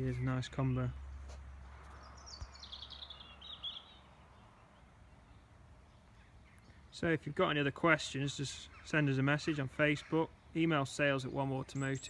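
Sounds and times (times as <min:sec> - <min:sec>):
faint outdoor background: 0:00.0 - 0:12.0
songbird singing high notes: 0:11.2 - 0:12.0.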